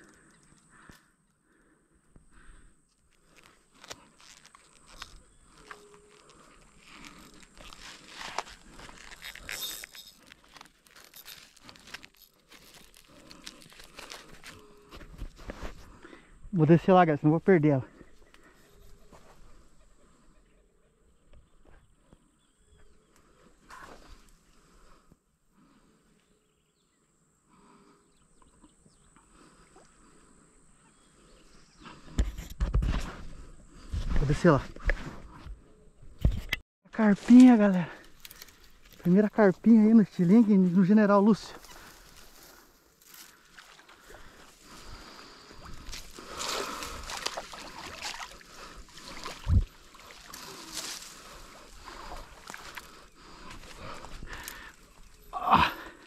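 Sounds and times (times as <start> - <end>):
water splashing and sloshing: 43.0 - 54.6.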